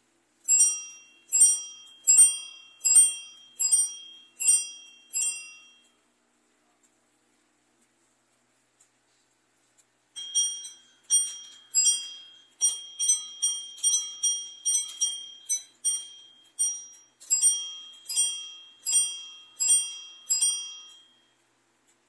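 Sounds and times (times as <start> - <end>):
clock bells striking: 0.5 - 5.9, 10.2 - 21.3.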